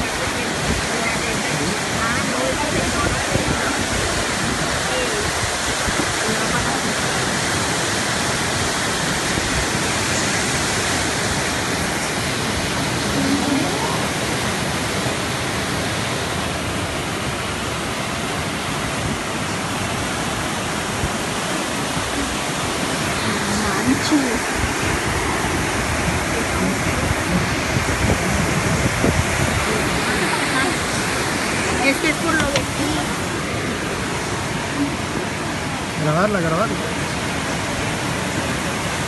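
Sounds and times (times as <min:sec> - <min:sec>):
floodwater rushing: 0:00.0 - 0:39.0
heavy rain hiss: 0:00.0 - 0:39.0.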